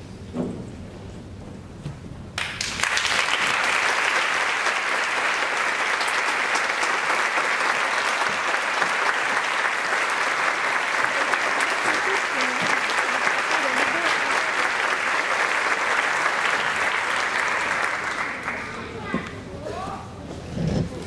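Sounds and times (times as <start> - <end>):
audience applauding: 2.4 - 19.1.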